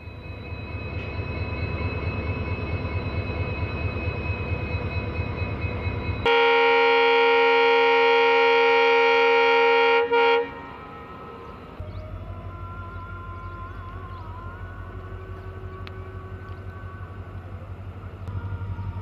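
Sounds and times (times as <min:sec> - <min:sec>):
diesel locomotive engine whine: 0:00.0 - 0:19.0
locomotive horn blast: 0:06.2 - 0:11.7.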